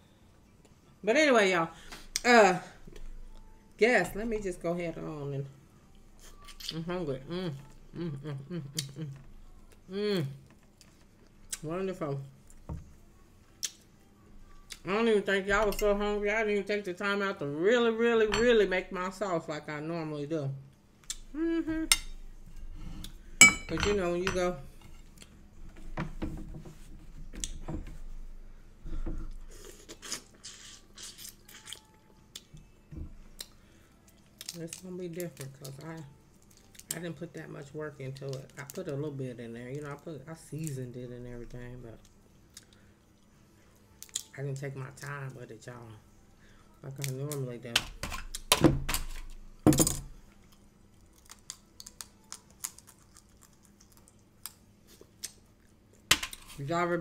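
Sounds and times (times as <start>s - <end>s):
person chewing shrimp: 29.4s - 32.5s, 50.5s - 55.4s.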